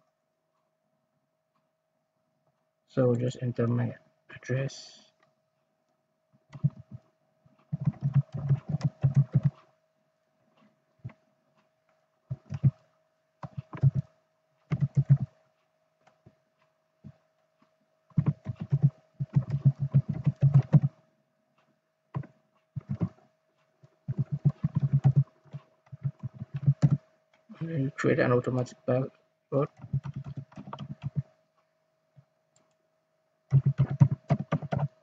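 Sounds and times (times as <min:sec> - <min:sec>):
typing on computer keyboard: 0:06.5 - 0:07.0, 0:07.7 - 0:09.6, 0:12.3 - 0:12.8, 0:13.4 - 0:14.1, 0:14.7 - 0:15.3, 0:18.1 - 0:21.0, 0:22.2 - 0:23.2, 0:24.1 - 0:27.0, 0:29.6 - 0:31.3, 0:33.5 - 0:35.0.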